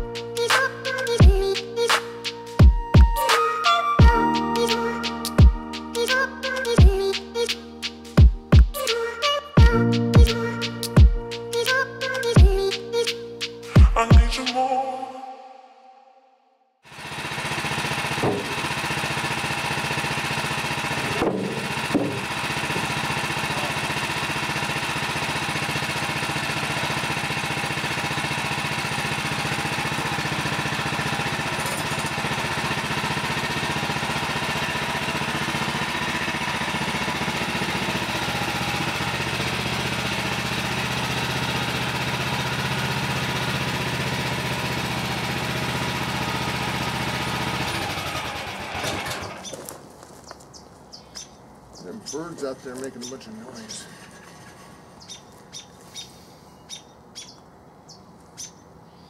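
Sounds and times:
bandsaw mill cutting log: 16.9s - 49.8s.

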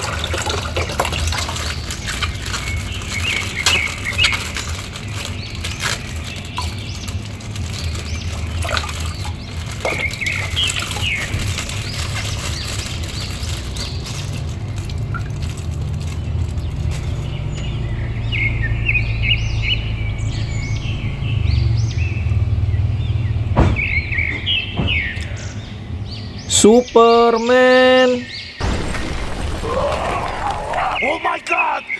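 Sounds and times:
water sloshing in a basin: 0.0s - 17.0s
plastic bag crinkling: 0.0s - 17.5s, 28.6s - 31.1s
small birds chirping: 0.0s - 31.9s.

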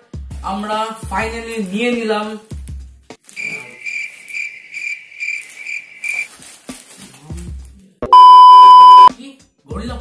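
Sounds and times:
cricket chirping: 3.4s - 6.3s.

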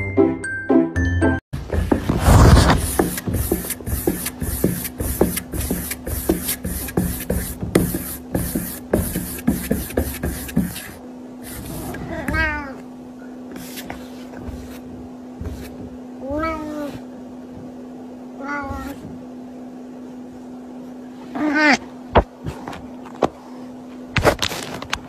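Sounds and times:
steady low hum: 1.6s - 25.0s
cat meowing: 12.0s - 12.8s, 16.2s - 17.0s, 18.4s - 19.0s.

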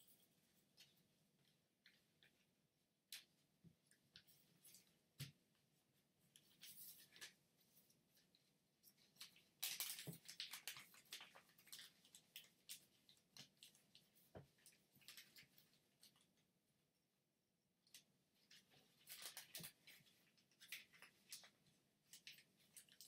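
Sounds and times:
paper crinkling as folded: 9.0s - 14.0s, 18.5s - 23.0s.

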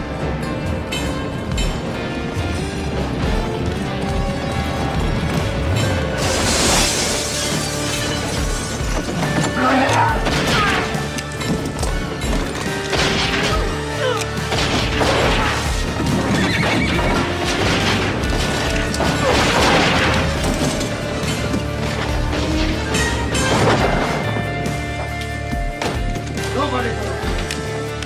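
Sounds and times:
dramatic orchestral music: 0.0s - 28.0s
horse whinnying: 16.2s - 17.4s.

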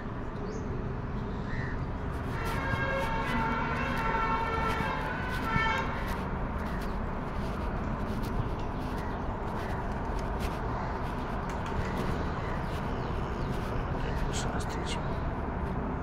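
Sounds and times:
outdoor background hum: 0.0s - 16.0s
steady horn-like tone: 2.2s - 6.3s.

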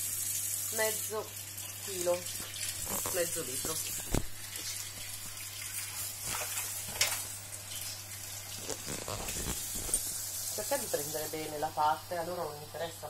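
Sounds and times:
tap running into sink: 2.2s - 5.4s.

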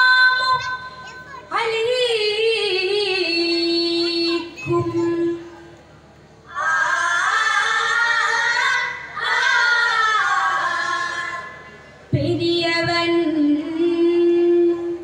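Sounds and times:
boys singing together: 6.5s - 11.6s.

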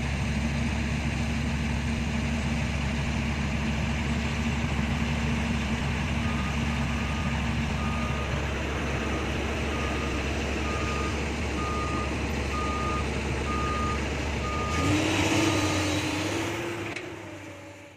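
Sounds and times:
diesel truck engines running: 0.0s - 17.9s
truck engine revving: 1.7s - 17.9s
truck reversing alarm beeping: 5.5s - 16.5s.

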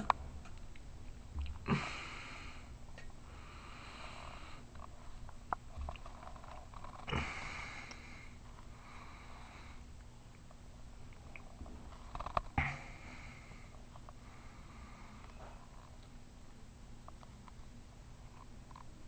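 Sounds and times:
noisy breathing: 1.6s - 5.2s, 6.1s - 10.0s, 11.9s - 15.8s.

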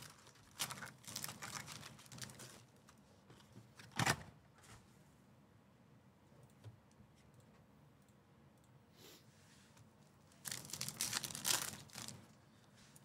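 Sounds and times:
foil wrapper crinkling and ripping: 0.0s - 2.8s, 10.4s - 12.4s.

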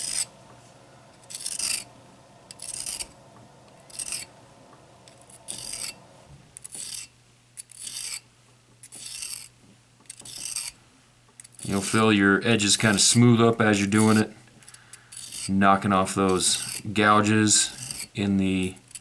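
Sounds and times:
knife rasping on sharpening rod: 0.0s - 0.3s, 1.2s - 1.9s, 2.6s - 3.1s, 3.9s - 4.3s, 5.2s - 6.0s, 6.6s - 8.2s, 8.9s - 9.5s, 10.1s - 10.8s, 11.6s - 12.0s, 14.0s - 14.3s, 15.1s - 15.6s, 16.4s - 16.9s, 17.6s - 18.1s.

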